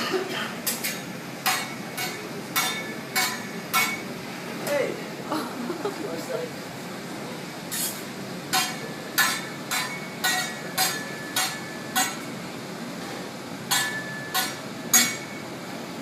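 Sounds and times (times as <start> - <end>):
metal utensils clanking on griddle: 0.0 - 4.1, 7.7 - 12.3, 13.0 - 15.5.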